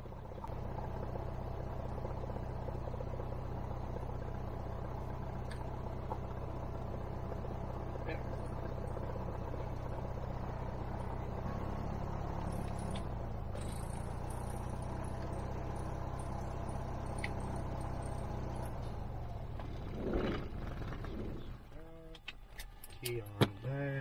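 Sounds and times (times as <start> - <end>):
aircraft engine idling: 0.0 - 19.8.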